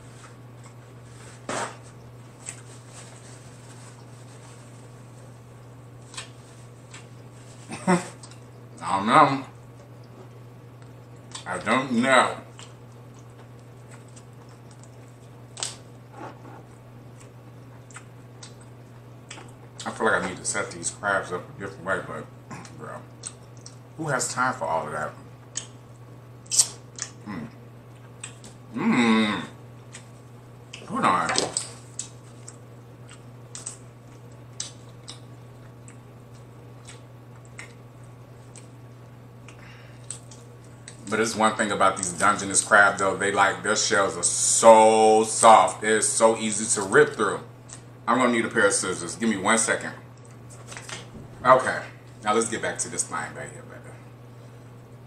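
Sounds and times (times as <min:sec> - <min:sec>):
steady low hum: 0:00.0 - 0:55.0
crab shell cracking: 0:12.6 - 0:15.8, 0:26.4 - 0:27.2.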